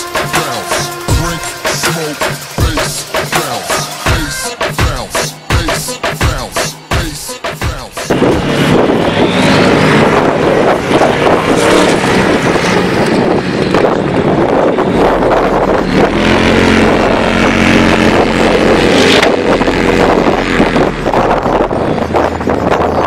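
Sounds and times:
off-road vehicle engines: 0.0s - 23.0s.

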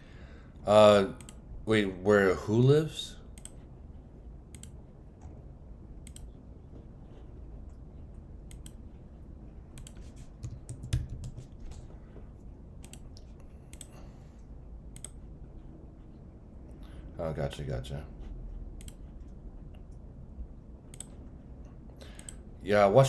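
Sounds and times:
low steady hum: 0.0s - 23.0s
computer mouse clicks: 1.2s - 1.4s, 3.3s - 3.7s, 4.5s - 5.4s, 6.0s - 6.4s, 8.4s - 8.8s, 9.7s - 11.9s, 12.8s - 14.0s, 14.9s - 15.2s, 18.8s - 20.0s, 20.9s - 21.2s, 22.0s - 22.5s
keyboard key presses: 9.7s - 11.9s.

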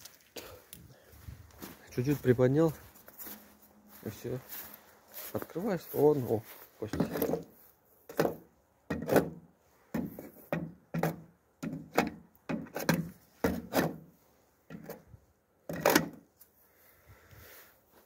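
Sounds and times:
stick scraping steel tank: 6.9s - 15.1s.

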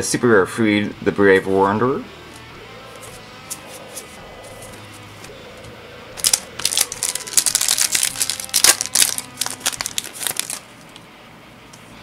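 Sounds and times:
foil wrapper crinkling: 6.2s - 10.7s.

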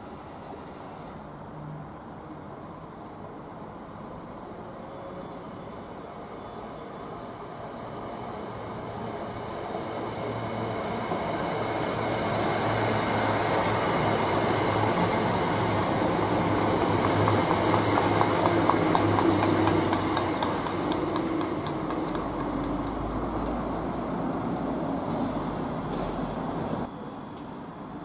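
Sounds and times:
electric train drawing in: 3.4s - 28.0s
electric train passing: 3.6s - 28.0s
wheels clicking over rail joints: 16.4s - 26.1s.

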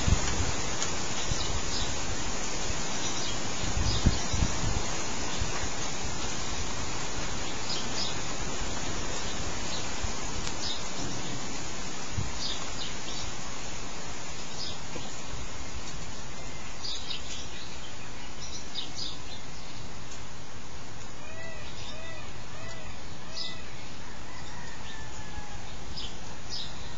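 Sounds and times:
steady background hiss: 0.0s - 26.9s
faint high bird chirps: 21.2s - 26.9s.

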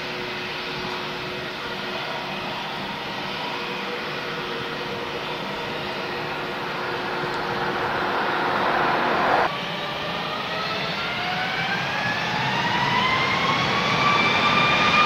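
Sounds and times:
jet engines rushing: 0.0s - 15.0s
whining engine tones: 1.6s - 9.6s.

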